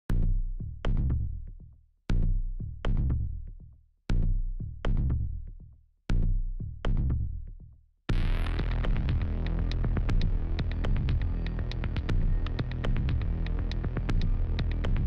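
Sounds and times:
heavy bass and drum hits: 8.1s - 15.0s.

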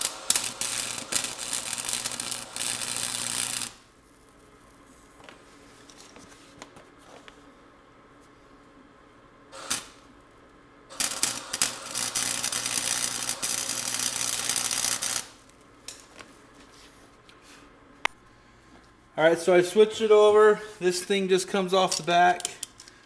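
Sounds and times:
welding arc crackling and hissing: 0.0s - 5.7s, 9.5s - 10.1s, 10.9s - 15.6s.

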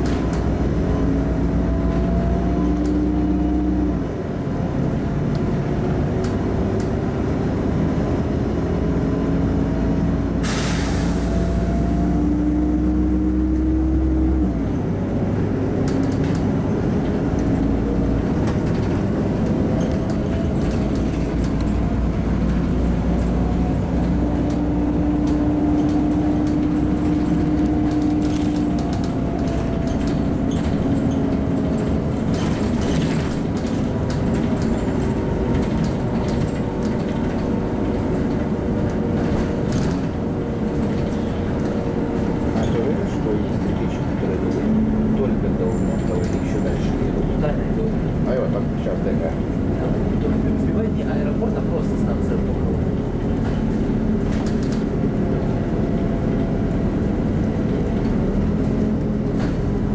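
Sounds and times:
bus drivetrain humming and whining: 0.0s - 59.9s
rattles and clicks from bus body: 0.0s - 59.9s
road rumble: 0.0s - 59.9s.

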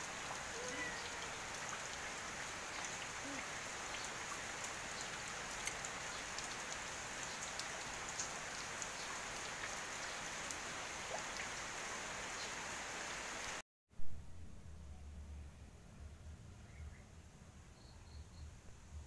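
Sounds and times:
raindrop ticks: 0.0s - 11.6s
rain falling on plants: 0.0s - 13.6s.

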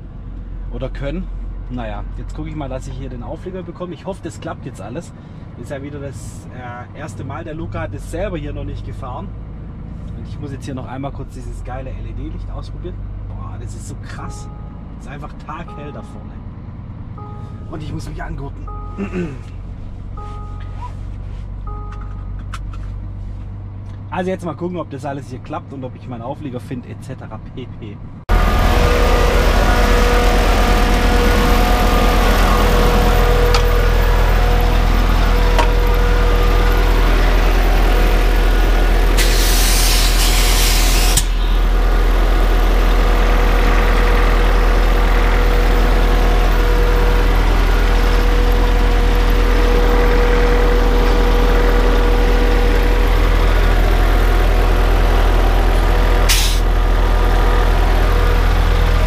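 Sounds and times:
truck diesel engine running: 10.7s - 24.7s, 28.3s - 59.0s
air brake hiss: 39.1s - 41.5s, 56.3s - 56.6s.

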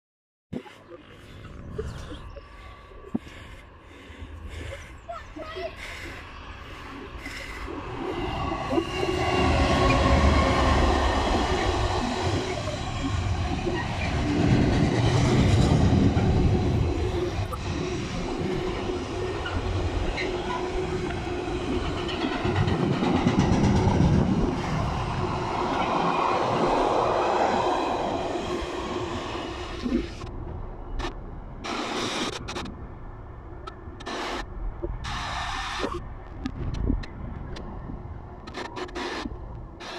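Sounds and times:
diesel locomotive passing: 0.9s - 36.3s
train wheels rumbling on rails: 1.7s - 39.9s.

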